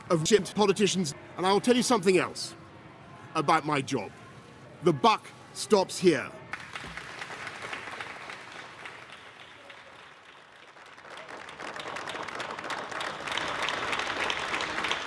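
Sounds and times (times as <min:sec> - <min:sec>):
crowd applauding: 0:06.5 - 0:15.0.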